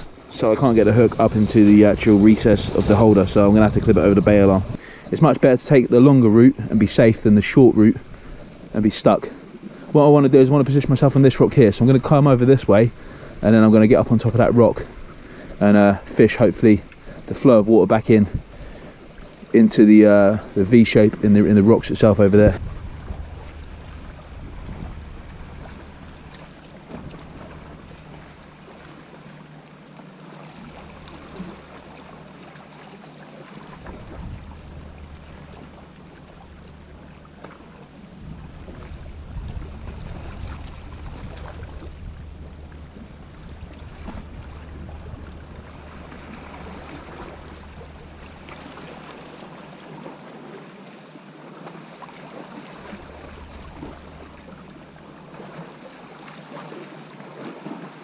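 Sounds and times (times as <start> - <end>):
wind buffeting microphone: 0.0 - 28.9, 33.7 - 49.5
sea washing around rocks: 0.0 - 58.0
low rumble: 22.2 - 28.8, 33.8 - 49.1.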